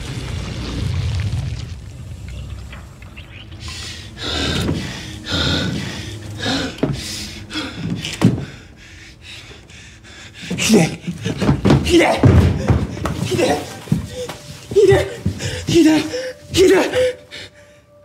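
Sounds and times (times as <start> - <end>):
low rumble: 0.0 - 10.2
person breathing hard: 3.6 - 11.7, 12.5 - 18.0.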